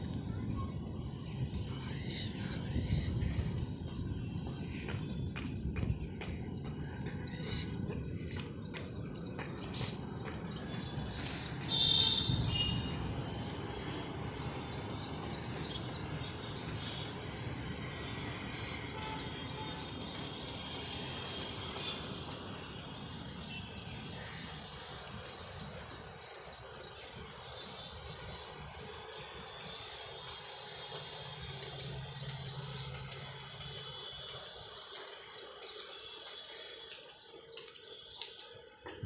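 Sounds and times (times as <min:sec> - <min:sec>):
steady low rumble: 0:00.0 - 0:18.9
birds chirping: 0:00.0 - 0:39.0.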